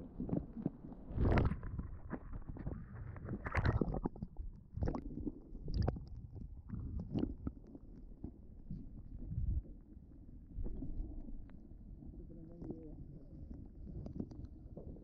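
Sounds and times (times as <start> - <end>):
muffled water sloshing and gurgling: 0.0 - 15.0.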